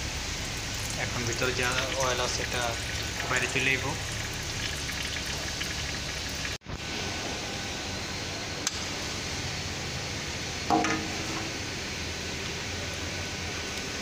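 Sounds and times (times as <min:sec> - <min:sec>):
oil draining hiss: 0:00.0 - 0:07.4.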